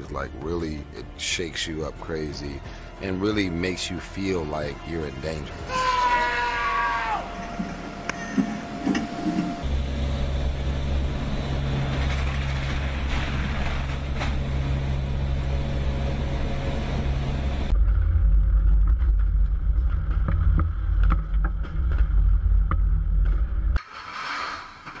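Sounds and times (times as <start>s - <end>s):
low mechanical rumble: 4.4s - 23.8s.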